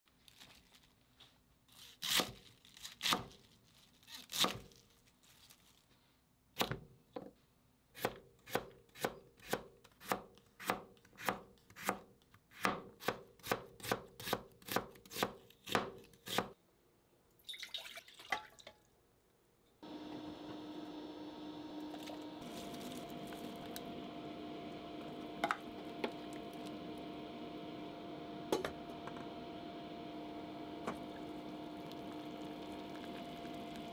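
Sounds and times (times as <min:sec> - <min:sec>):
pot of water heating hiss: 0:31.0 - 0:33.9.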